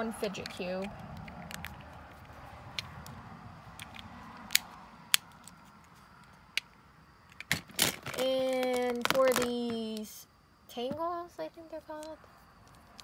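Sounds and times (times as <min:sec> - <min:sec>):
fidget cube clicking: 0:00.4 - 0:03.2.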